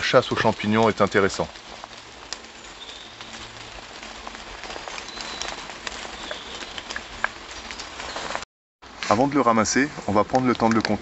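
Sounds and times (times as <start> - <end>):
footsteps in fallen leaves: 0.0 - 11.0.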